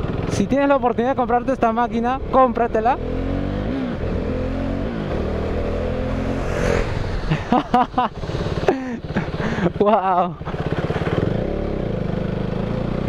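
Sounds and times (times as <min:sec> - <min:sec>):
wind noise: 0:04.9 - 0:09.8
motorcycle engine running: 0:08.7 - 0:13.0.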